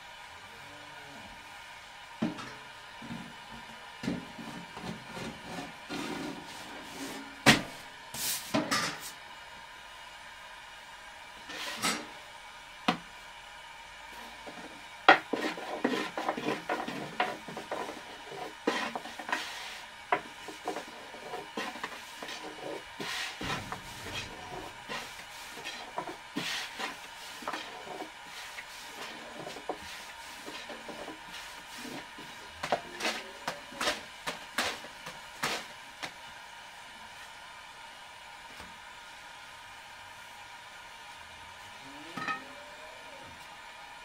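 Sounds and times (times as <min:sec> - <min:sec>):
household objects knocking and scraping: 0:23.4 - 0:27.9.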